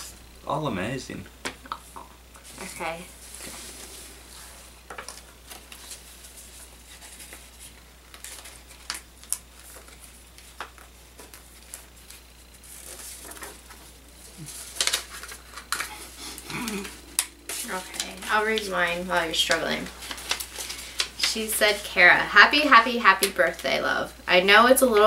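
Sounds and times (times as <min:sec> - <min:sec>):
paper rustling and tearing: 0:03.2 - 0:10.6, 0:11.2 - 0:16.1, 0:17.6 - 0:21.8.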